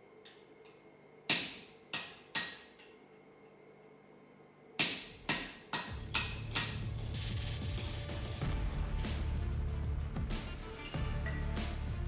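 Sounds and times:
hammer striking metal punch: 0:01.3 - 0:02.9, 0:04.8 - 0:06.9.

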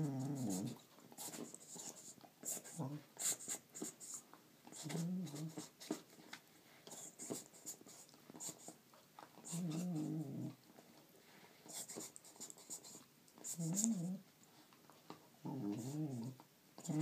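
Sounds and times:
dog whining: 0:15.5 - 0:17.0.

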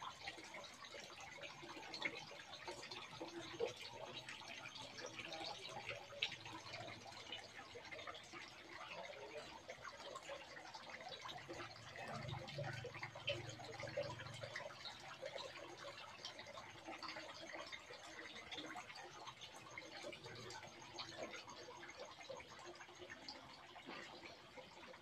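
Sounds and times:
water trickling into a pond: 0:00.0 - 0:25.0.

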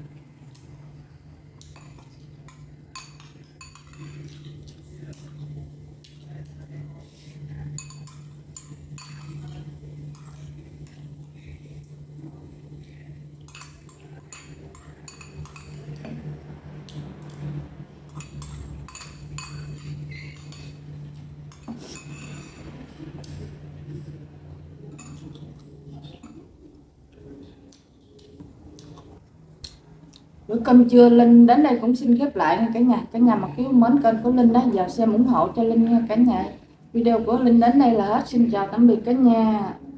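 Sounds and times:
steady low hum: 0:00.0 - 0:39.9
spoon clinking against ceramic bowl: 0:01.6 - 0:04.4, 0:07.8 - 0:10.3, 0:13.5 - 0:15.9, 0:18.1 - 0:20.8, 0:21.5 - 0:22.7, 0:24.9 - 0:25.4.

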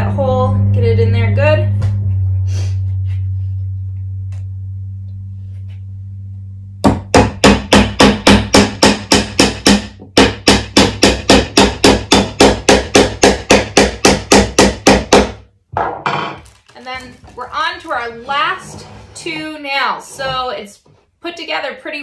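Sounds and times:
hammer nailing into wood: 0:06.9 - 0:15.4.

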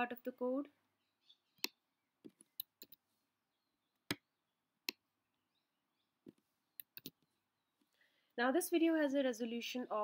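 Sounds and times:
mouse and keyboard clicks: 0:06.2 - 0:07.2.

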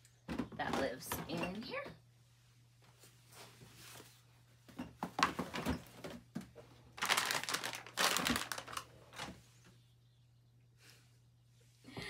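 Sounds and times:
plastic rustling and crinkling: 0:06.9 - 0:09.6.

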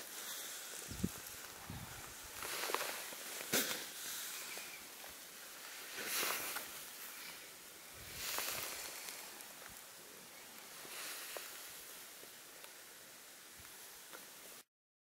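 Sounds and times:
wind gusting over microphone: 0:00.8 - 0:02.4, 0:07.9 - 0:08.7.

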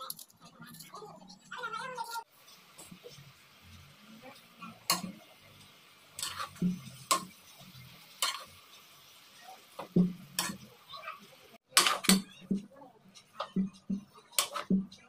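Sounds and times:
spoon scraping a steel pan: 0:06.2 - 0:08.9, 0:13.1 - 0:14.8.

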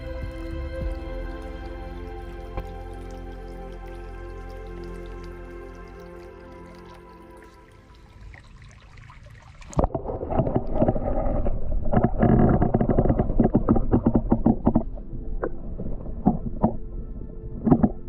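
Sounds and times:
faint stream trickle: 0:00.0 - 0:11.0
muffled underwater stream rush: 0:00.0 - 0:18.0
small knocks and clicks underwater: 0:09.6 - 0:15.6, 0:16.2 - 0:16.9, 0:17.6 - 0:18.0.

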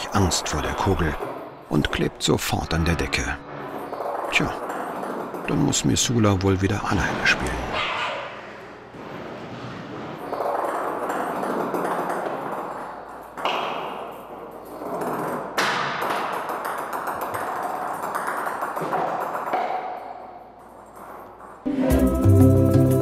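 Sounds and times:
ball rolling across floor: 0:03.1 - 0:06.2, 0:08.1 - 0:21.7.

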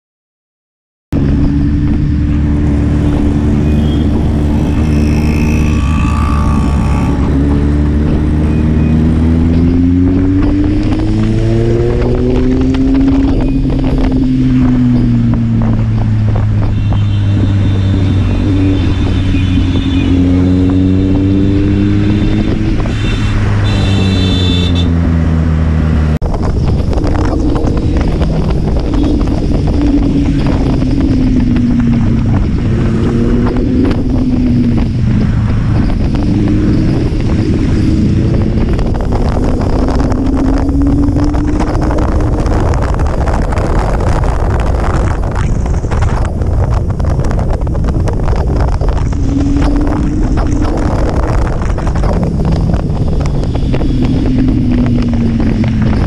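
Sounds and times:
wind rushing over microphone: 0:01.1 - 0:56.0
motorcycle engine accelerating: 0:01.2 - 0:56.0
car horn beeps: 0:03.1 - 0:07.4, 0:16.7 - 0:20.5, 0:22.0 - 0:25.0.

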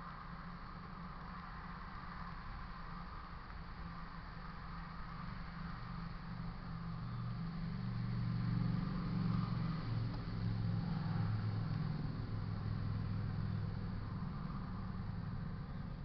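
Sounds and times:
vehicle engine low drone: 0:00.0 - 0:16.0
vehicle passing: 0:05.5 - 0:15.7.

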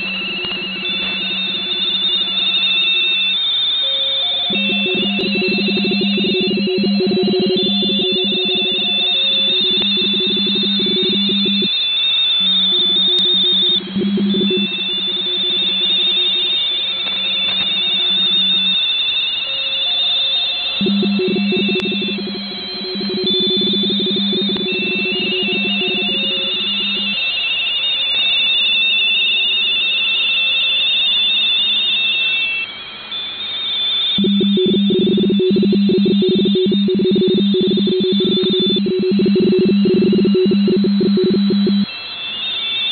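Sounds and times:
radio teletype signals warbling: 0:00.0 - 0:03.1, 0:04.3 - 0:18.8, 0:20.8 - 0:27.2, 0:34.2 - 0:41.9
low-pitched signal keying on and off: 0:00.0 - 0:03.5, 0:04.2 - 0:18.9, 0:20.8 - 0:27.5, 0:34.2 - 0:41.9.

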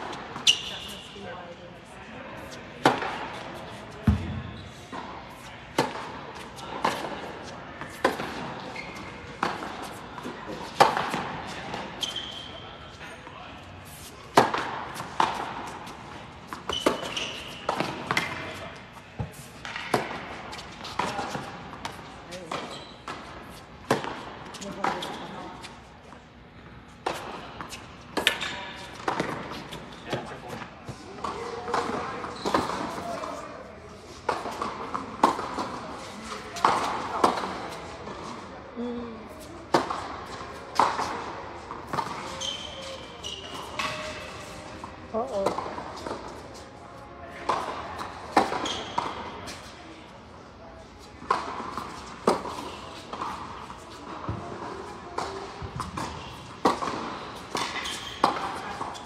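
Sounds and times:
shoe squeak: 0:00.4 - 0:01.2, 0:04.4 - 0:04.9, 0:08.6 - 0:09.3, 0:12.0 - 0:12.8, 0:16.7 - 0:18.7, 0:22.4 - 0:23.6, 0:32.2 - 0:33.4, 0:42.0 - 0:44.6, 0:48.5 - 0:49.6, 0:56.0 - 0:56.5, 0:57.2 - 0:59.0
tennis ball racket hits echoing: 0:14.3 - 0:25.4, 0:34.2 - 0:37.8, 0:51.2 - 0:59.0.

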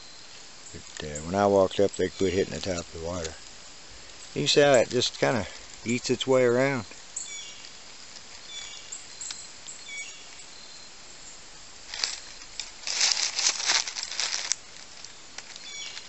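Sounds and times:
footsteps crunching dry leaves: 0:11.8 - 0:16.0.

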